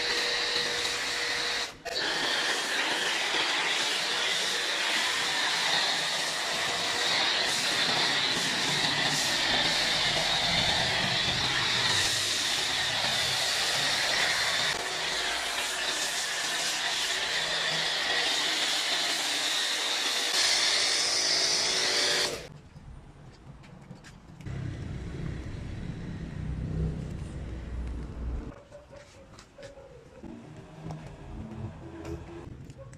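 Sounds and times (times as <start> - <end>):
foam cannon spraying hiss: 2.0 - 17.1
low rumble: 24.5 - 28.5.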